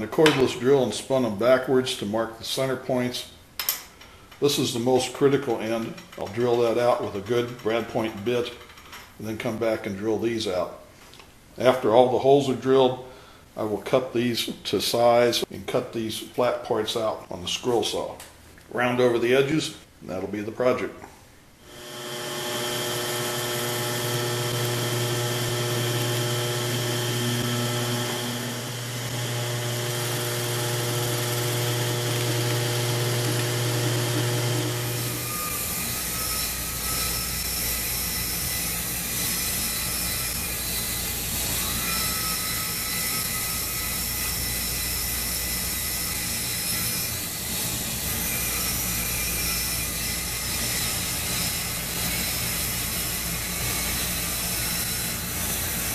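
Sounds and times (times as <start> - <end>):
bandsaw cutting hardboard: 21.7 - 55.9
drill press boring: 21.7 - 55.9.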